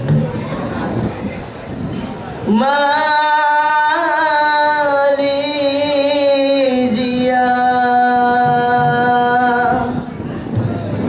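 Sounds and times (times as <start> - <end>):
person singing a long note: 2.5 - 10.1.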